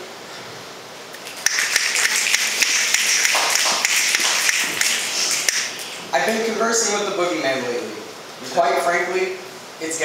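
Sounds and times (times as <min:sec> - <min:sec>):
audience applauding: 0:01.2 - 0:06.0.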